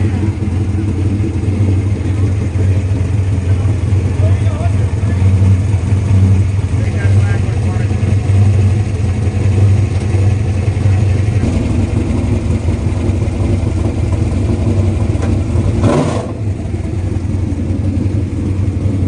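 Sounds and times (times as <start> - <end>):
race car engine idling: 0.0 - 19.0.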